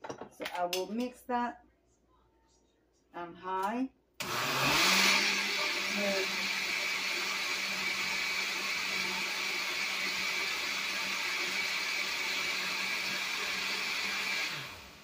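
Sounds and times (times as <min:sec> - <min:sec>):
blender running: 0:04.2 - 0:15.0.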